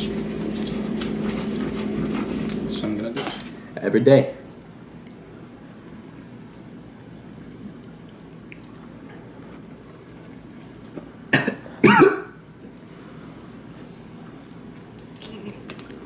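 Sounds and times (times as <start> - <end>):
man coughing: 11.3 - 12.4.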